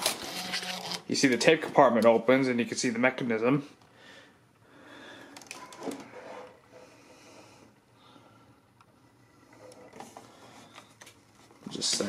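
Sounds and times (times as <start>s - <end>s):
person breathing: 3.9s - 8.8s, 10.0s - 11.1s.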